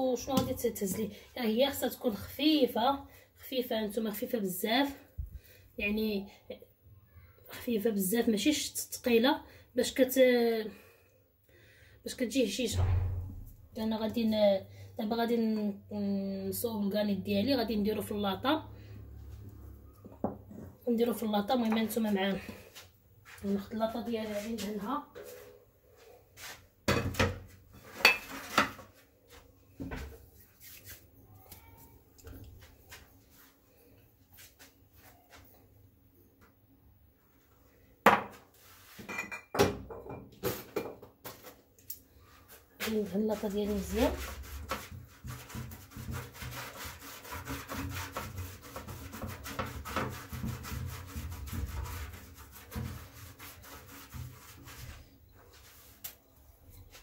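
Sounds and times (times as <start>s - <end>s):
pastry brush scraping metal tray: 42.9s - 55.1s.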